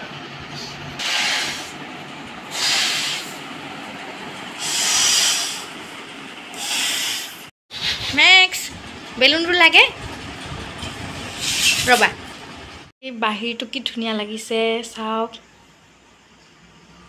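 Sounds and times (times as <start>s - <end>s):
breathy puffs into balloon: 1.0s - 1.8s, 6.5s - 8.0s.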